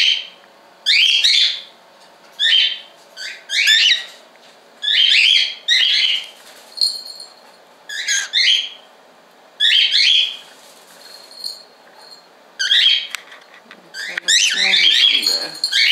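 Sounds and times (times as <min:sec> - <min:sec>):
cockatiel chirps: 0:04.8 - 0:06.3, 0:07.9 - 0:08.8, 0:09.6 - 0:10.4, 0:12.6 - 0:13.1.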